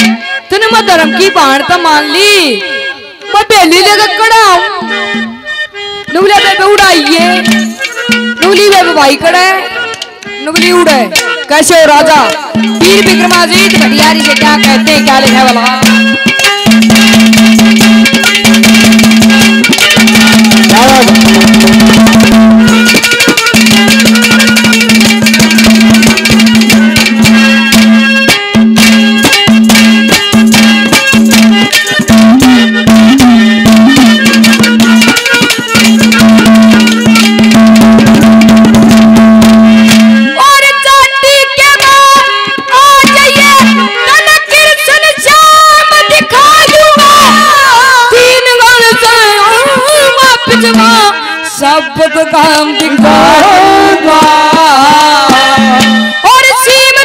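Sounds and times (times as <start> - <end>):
fast hand drum playing: 0.0 - 1.2, 6.3 - 9.2, 10.5 - 51.1, 52.8 - 57.0
man singing high drawn-out line: 40.2 - 57.0.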